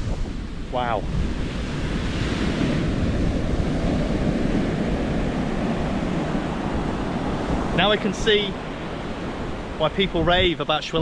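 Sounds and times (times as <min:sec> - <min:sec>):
ocean surf breaking on beach: 0:00.0 - 0:11.0
wind on microphone: 0:00.0 - 0:11.0.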